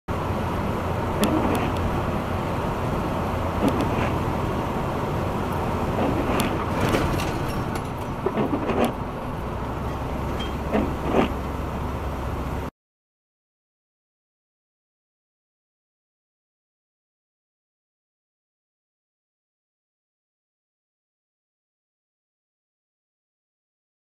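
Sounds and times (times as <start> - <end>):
road and drivetrain noise: 0.1 - 12.7.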